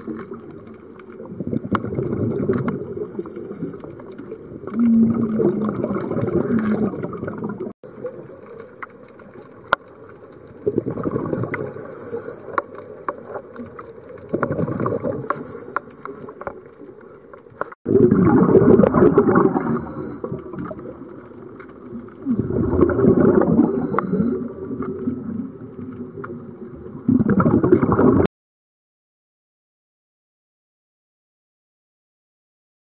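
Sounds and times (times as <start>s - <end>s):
diver exhaling bubbles underwater: 1.2s - 3.8s, 4.6s - 8.2s, 10.6s - 12.5s, 14.3s - 15.8s, 17.9s - 21.0s, 22.1s - 25.5s, 26.9s - 28.3s
breathing hiss: 3.0s - 3.9s, 11.7s - 12.6s, 15.2s - 16.2s, 19.6s - 20.4s, 23.7s - 24.5s.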